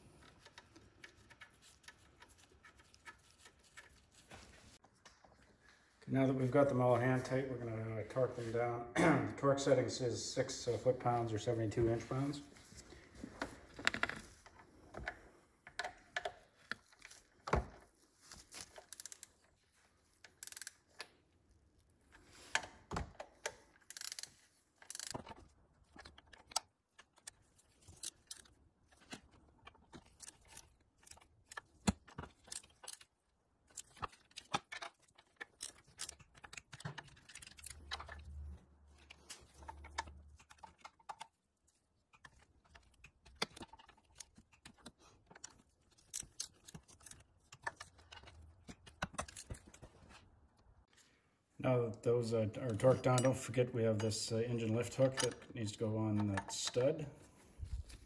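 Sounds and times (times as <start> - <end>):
torque wrench clicking: 20.3 - 20.8, 23.8 - 25.2.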